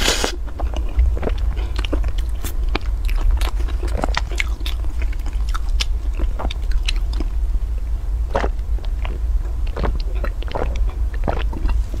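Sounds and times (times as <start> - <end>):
low hum: 0.0 - 12.0
mouth chewing: 0.0 - 12.0.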